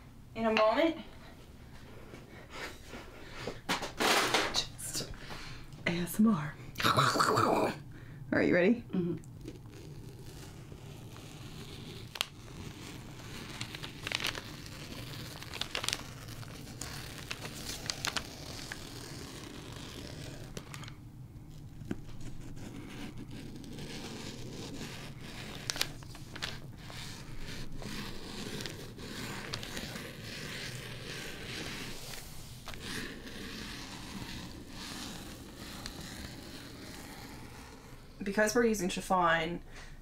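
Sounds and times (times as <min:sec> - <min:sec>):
rotary cutter cutting fabric: 0:09.4 - 0:20.7, 0:21.8 - 0:38.2.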